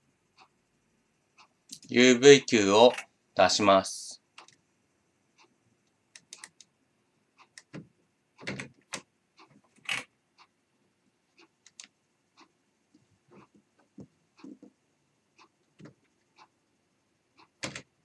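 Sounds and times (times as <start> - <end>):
computer mouse clicks: 4.4 - 4.6, 5.4 - 6.7, 11.4 - 12.0, 17.4 - 17.9.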